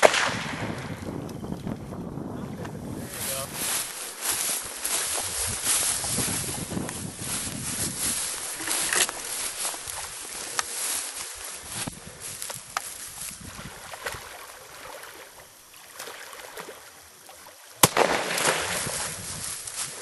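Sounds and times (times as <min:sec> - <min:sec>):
gunshot: 0:00.0 - 0:00.9, 0:17.8 - 0:18.9
water sloshing around boat: 0:13.2 - 0:17.8.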